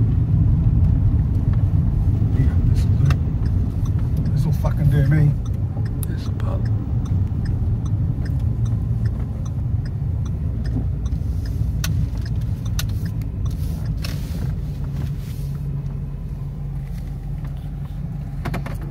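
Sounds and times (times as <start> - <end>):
car engine idling: 0.0 - 18.9
faint regular ticking: 2.6 - 14.0
sharp clicks: 5.0 - 14.1.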